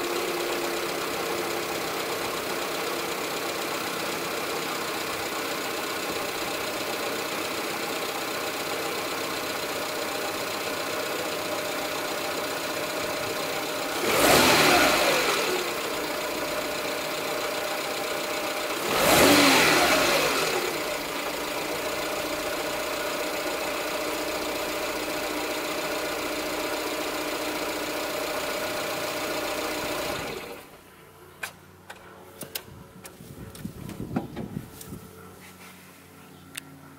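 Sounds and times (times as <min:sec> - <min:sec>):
car engine idling and revving: 0:00.0 - 0:30.8.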